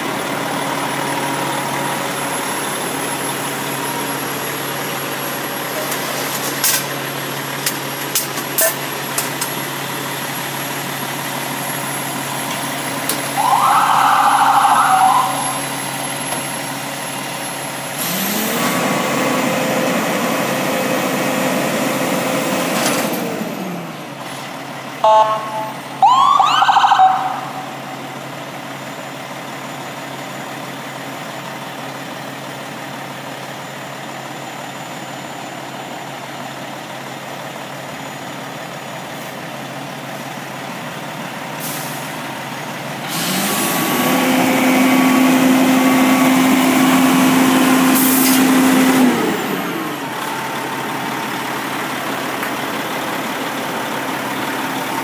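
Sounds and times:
diesel engine idling and revving: 0.0s - 55.0s
short high warning tones: 25.0s - 26.0s.

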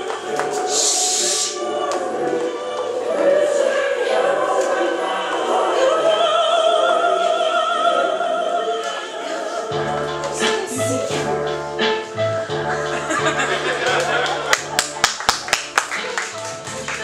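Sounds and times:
operatic voice singing: 0.0s - 11.3s
choral and orchestral backing: 0.0s - 17.0s
low bass notes: 9.7s - 14.8s.

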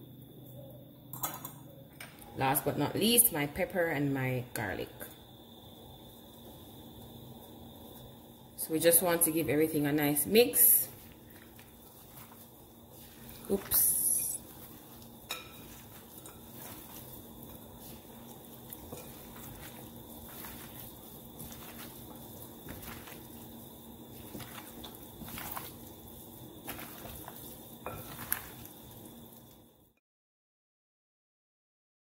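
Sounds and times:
faint steady hum: 0.0s - 30.0s
wet meat handling: 11.1s - 28.9s.

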